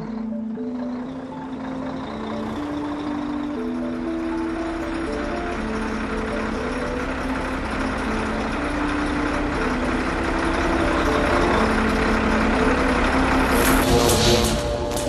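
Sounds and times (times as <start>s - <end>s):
diesel truck engine running: 0.0s - 15.0s
electric arc crackling: 13.6s - 15.0s.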